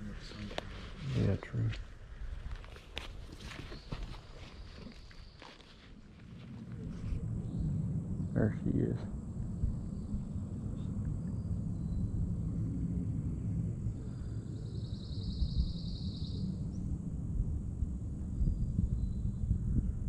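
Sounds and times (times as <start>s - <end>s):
low rumble: 0.0s - 20.0s
faint high chirps: 9.6s - 16.8s.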